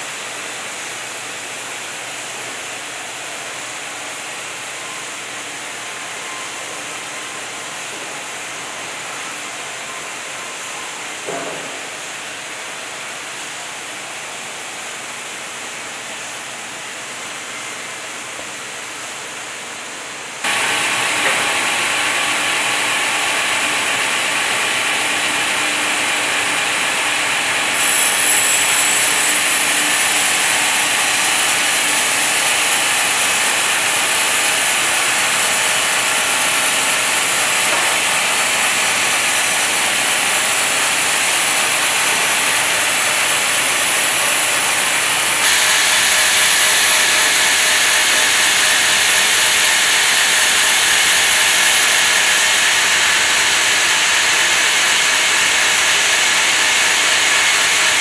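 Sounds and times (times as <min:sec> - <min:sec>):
band saw cutting log: 0:20.5 - 0:58.0.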